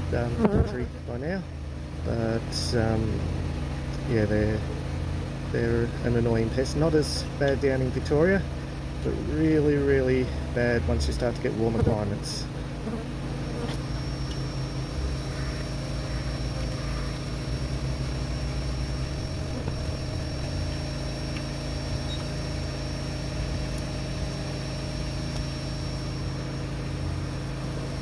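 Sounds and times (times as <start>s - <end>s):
small motor humming: 12.7s - 28.0s
faint high whine: 13.3s - 28.0s.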